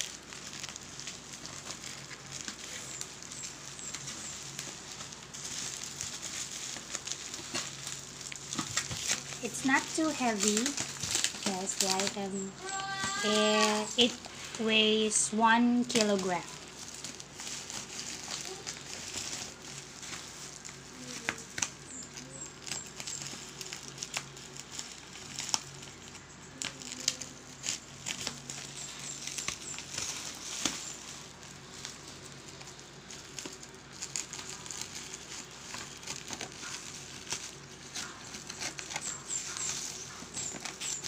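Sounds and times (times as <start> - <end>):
bubble wrap crackles and clicks: 0.0 - 41.0
bubble wrap crinkling: 0.0 - 41.0.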